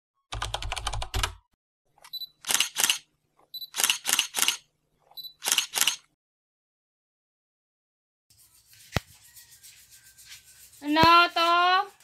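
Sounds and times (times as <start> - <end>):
camera shutter clicks: 2.4 - 3.0, 3.7 - 4.6, 5.4 - 6.1.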